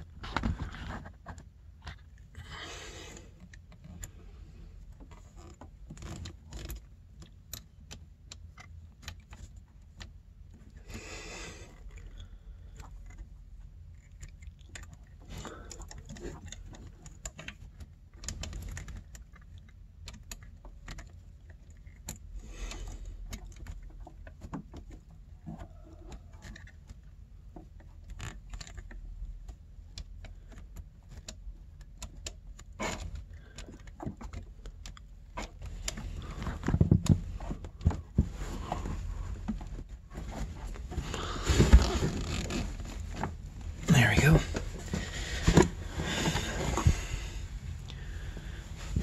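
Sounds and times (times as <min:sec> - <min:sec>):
metal cables clicking and scraping: 0:11.8 - 0:37.9.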